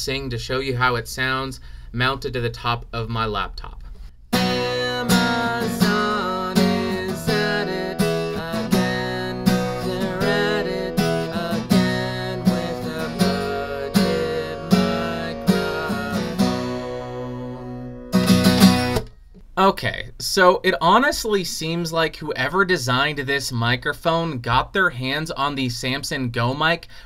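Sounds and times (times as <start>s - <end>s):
acoustic guitar strumming: 4.3s - 19.3s
man singing: 4.4s - 17.9s.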